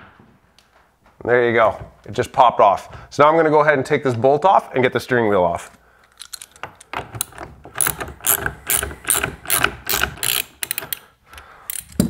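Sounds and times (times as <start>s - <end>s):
ratchet wrench clicking: 6.2s - 12.0s.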